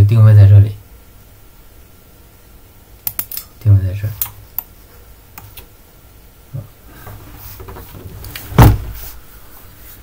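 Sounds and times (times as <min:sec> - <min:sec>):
low steady hum: 0:00.0 - 0:10.0
dull thump: 0:07.6 - 0:09.1.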